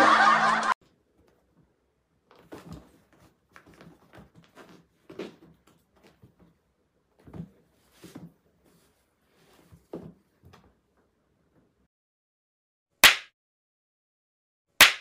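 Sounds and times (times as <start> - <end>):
cats play-fighting scuffles: 2.3 - 6.6.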